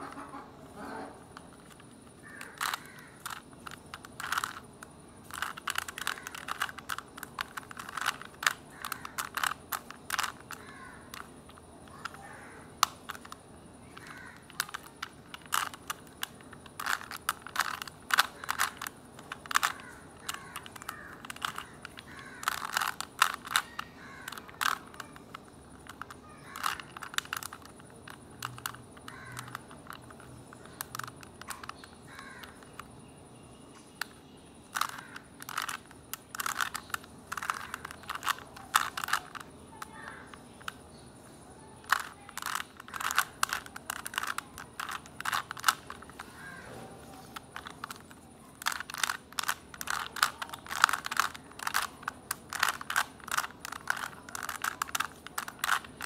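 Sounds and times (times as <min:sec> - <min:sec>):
puzzle cube clicking turns: 0:00.0 - 0:33.1, 0:33.7 - 0:56.0.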